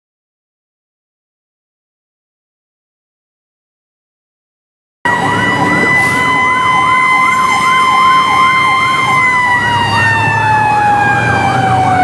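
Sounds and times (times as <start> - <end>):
steady high siren tone: 5.0 - 12.0
electronic siren yelping: 5.1 - 12.0
truck engine rumbling: 5.1 - 12.0.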